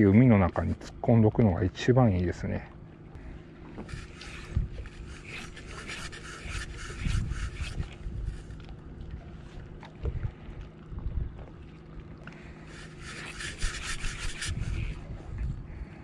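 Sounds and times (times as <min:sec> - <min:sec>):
wind thumps on microphone: 0:03.8 - 0:05.1, 0:13.5 - 0:15.6
fishing rod and reel handling: 0:03.8 - 0:08.7, 0:12.7 - 0:15.0.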